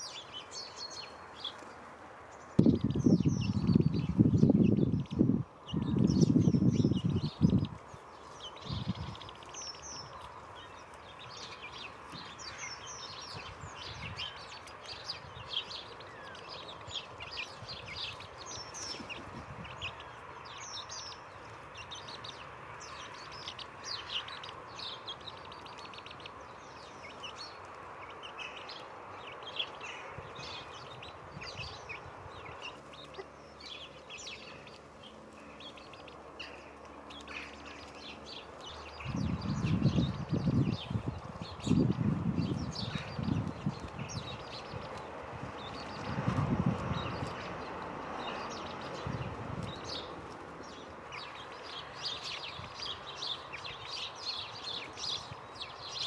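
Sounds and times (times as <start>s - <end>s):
songbirds chirping: 0.0s - 56.0s.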